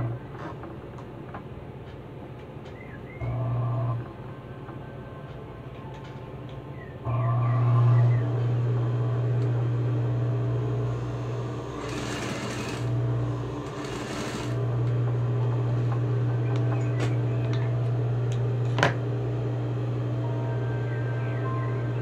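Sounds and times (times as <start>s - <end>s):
sewing machine stitching fabric: 11.7s - 13.0s, 13.6s - 14.6s.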